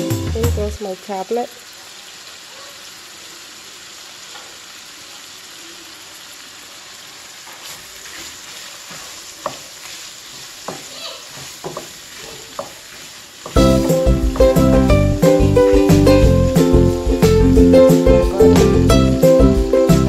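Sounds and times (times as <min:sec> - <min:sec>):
food sizzling in a frying pan: 0:00.0 - 0:20.0
wooden spatula scraping a pan: 0:07.5 - 0:13.6.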